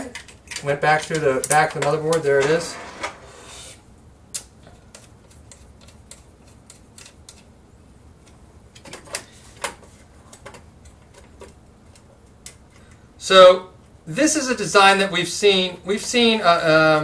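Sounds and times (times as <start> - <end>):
small parts clicking and tapping: 0.0 - 2.2.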